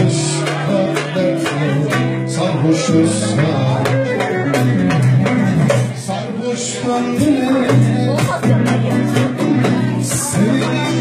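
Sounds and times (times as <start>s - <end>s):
band music: 0.0s - 11.0s
plucked strings: 0.0s - 11.0s
steady drum beat: 0.0s - 11.0s.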